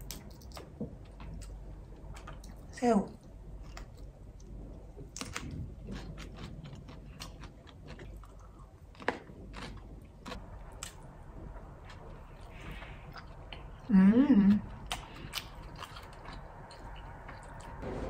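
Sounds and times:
person chewing shrimp: 0:03.6 - 0:11.0, 0:11.8 - 0:13.9, 0:14.6 - 0:17.8.

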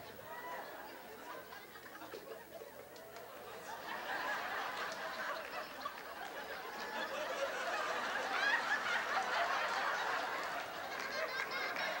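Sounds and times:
studio audience laughing: 0:03.4 - 0:12.0.

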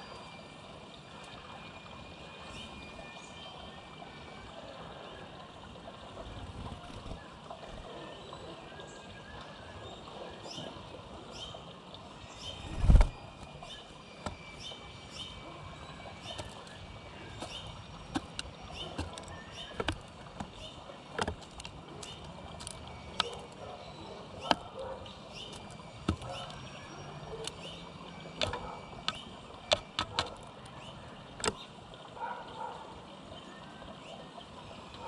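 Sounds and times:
beak pecking plastic feeder: 0:16.2 - 0:26.8, 0:27.4 - 0:30.5.

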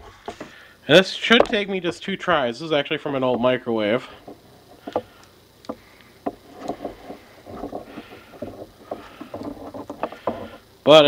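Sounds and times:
tool and cord creaking: 0:00.0 - 0:00.6, 0:03.1 - 0:11.0.

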